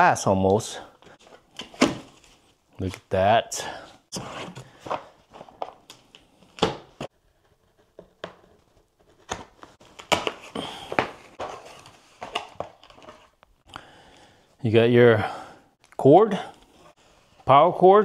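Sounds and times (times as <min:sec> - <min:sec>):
cardboard box rustling and scraping: 0:04.1 - 0:05.6.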